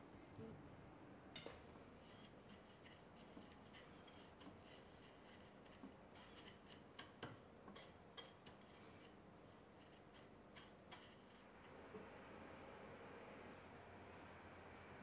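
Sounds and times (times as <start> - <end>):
faint rustling: 1.9 - 11.7.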